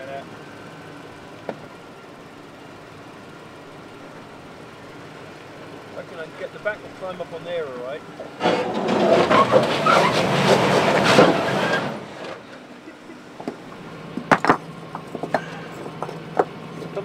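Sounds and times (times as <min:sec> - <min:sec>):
engine straining then idling: 0:00.0 - 0:17.0
rocks clacking: 0:13.4 - 0:17.0.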